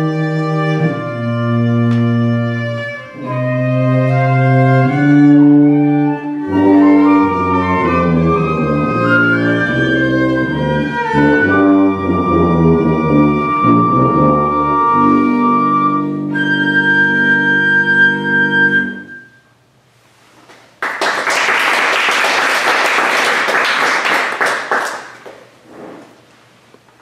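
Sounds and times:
flute cello and tuba chord: 0:00.0 - 0:19.4
audience applauding: 0:20.8 - 0:25.5.

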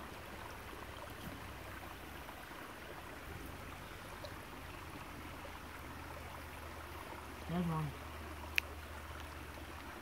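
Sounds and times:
creek water running over stones: 0:00.0 - 0:10.0.

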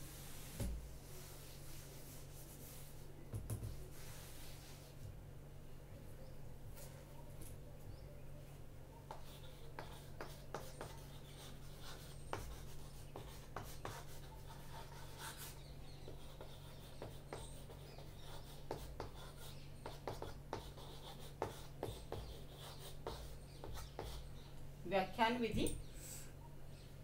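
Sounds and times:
faint low hum: 0:00.0 - 0:27.0
chalk writing on chalkboard: 0:01.2 - 0:05.0, 0:09.0 - 0:24.4.

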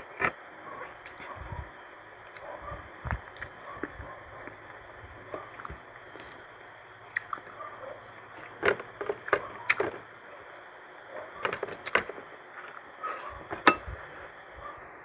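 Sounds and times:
chewing and mouth noises: 0:02.2 - 0:10.0.

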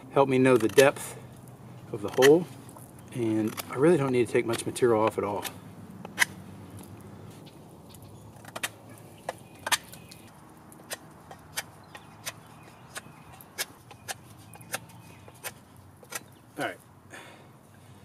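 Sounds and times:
knife whittling wood clicks: 0:03.4 - 0:04.6, 0:10.8 - 0:16.3.

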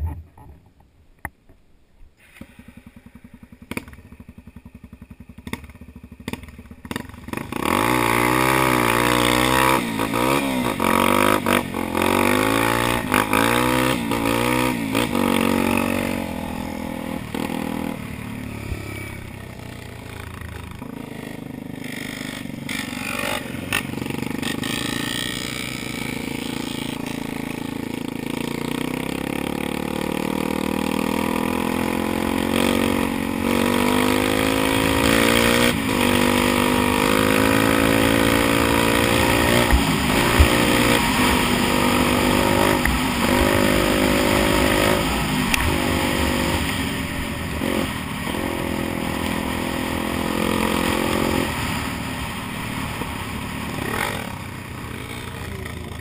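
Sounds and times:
dirt bike engine revving: 0:02.2 - 0:56.0.

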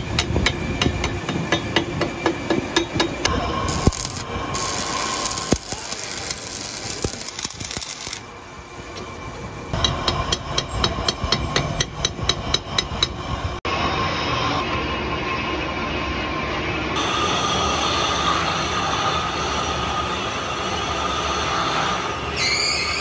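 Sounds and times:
chipping hammer tapping metal: 0:03.7 - 0:08.2
welding arc hissing and crackling: 0:03.7 - 0:08.3.

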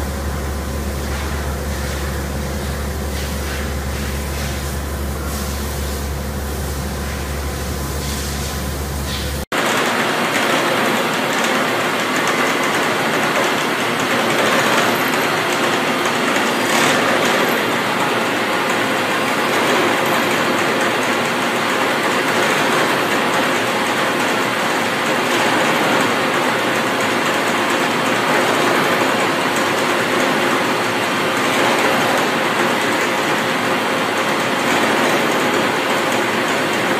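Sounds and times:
milling machine cutting metal: 0:08.6 - 0:36.9.

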